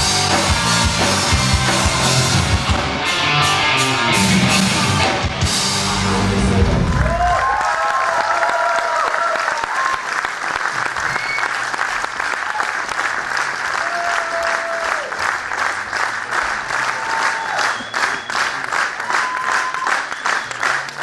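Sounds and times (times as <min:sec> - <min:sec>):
live rock band playing: 0:00.0 - 0:07.1
audience applauding: 0:06.7 - 0:21.0.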